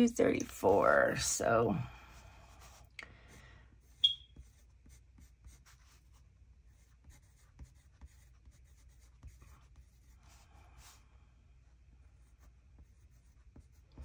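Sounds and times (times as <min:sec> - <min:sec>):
pencil scratching on paper: 0:02.1 - 0:02.9, 0:03.8 - 0:11.0, 0:12.0 - 0:14.0.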